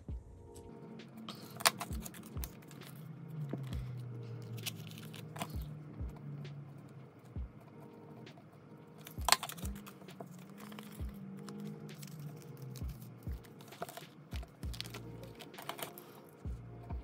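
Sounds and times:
soft background music: 0.0s - 17.0s
plastic binder pages handled: 1.2s - 6.9s, 8.3s - 17.0s
pen clicks and taps: 7.6s - 16.2s.

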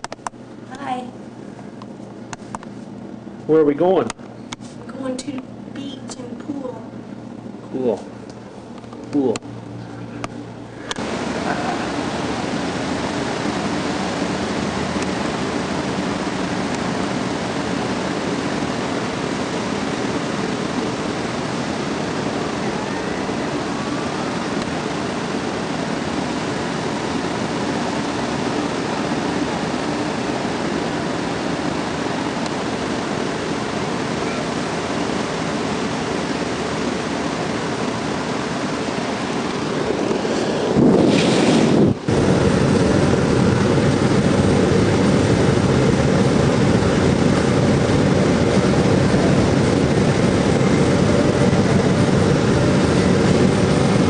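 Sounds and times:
ocean surf breaking: 10.9s - 54.0s
wind on microphone: 38.1s - 54.0s.

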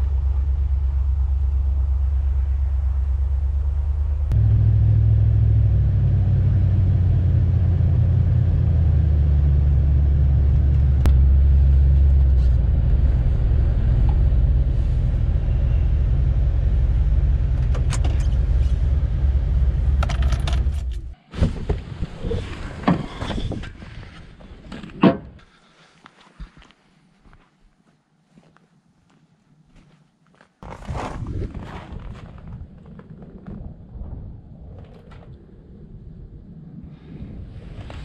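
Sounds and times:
truck engine and road noise: 0.0s - 21.2s.

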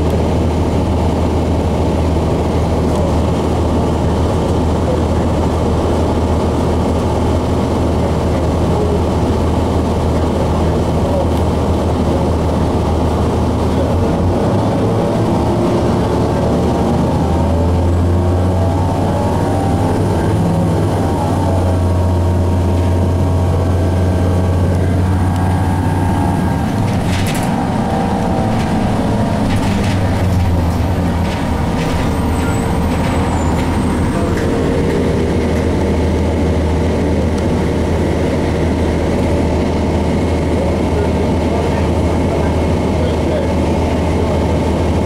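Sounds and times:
bus diesel engine droning: 0.0s - 45.0s
sharp clicks or rattles: 26.7s - 27.7s.

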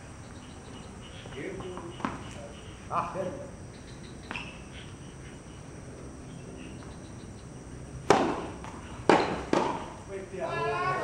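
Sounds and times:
tennis ball being struck: 8.0s - 10.0s.

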